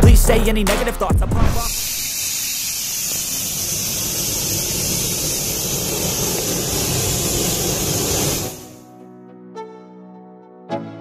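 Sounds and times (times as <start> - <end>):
compressed air hissing: 1.5 - 8.8.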